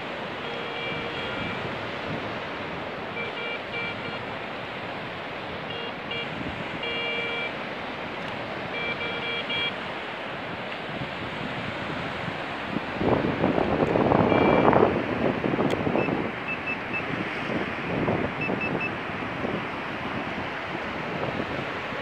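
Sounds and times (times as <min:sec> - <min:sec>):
metal detector beeps: 0:00.4 - 0:01.6, 0:03.1 - 0:04.2, 0:05.7 - 0:07.5, 0:08.7 - 0:09.7, 0:14.3 - 0:14.7, 0:16.0 - 0:17.1, 0:18.4 - 0:19.0.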